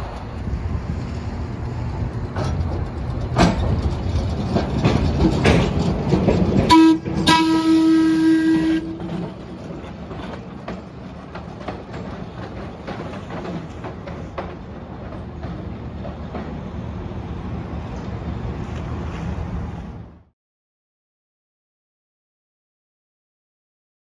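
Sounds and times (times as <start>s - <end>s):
streetcar wheels rumbling on rails: 0.0s - 20.3s
streetcar horn blasts: 6.6s - 9.3s.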